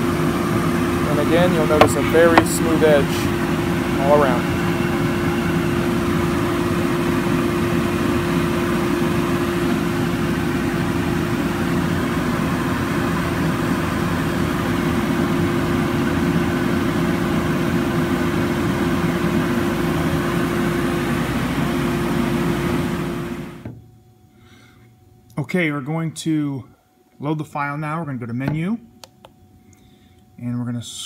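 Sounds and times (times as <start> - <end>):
router machine droning: 0.5 - 8.1.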